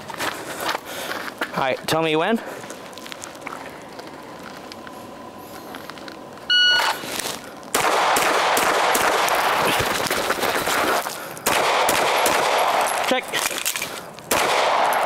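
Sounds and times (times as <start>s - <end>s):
shot timer beep: 6.5s - 7.0s
airsoft pistol firing fast: 7.7s - 9.8s, 11.4s - 12.9s, 14.3s - 15.0s.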